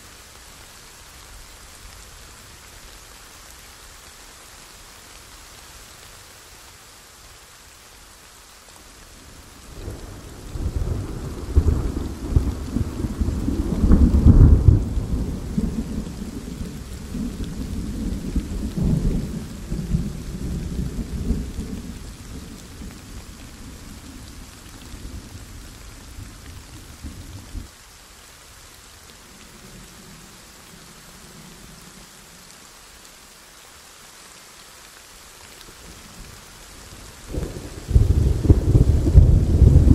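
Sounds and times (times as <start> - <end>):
heavy rain: 0.0 - 39.9
thunder rolling: 10.7 - 18.0, 37.3 - 39.9.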